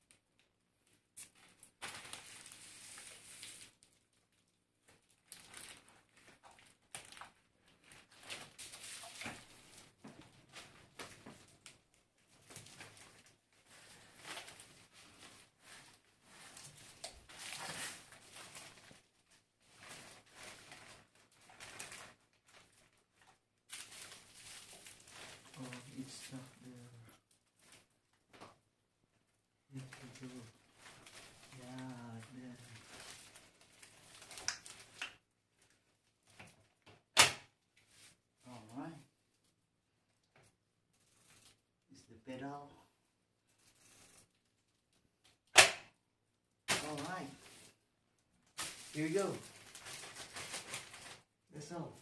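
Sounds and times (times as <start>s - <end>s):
plastic wrapping crinkling: 0.0s - 28.6s, 29.7s - 36.9s, 46.6s - 52.0s.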